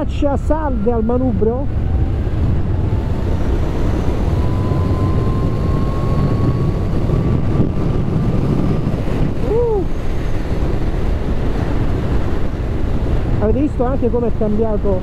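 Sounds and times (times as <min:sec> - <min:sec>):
wind and road noise: 0:00.0 - 0:15.0
electric motor whine: 0:00.5 - 0:09.4.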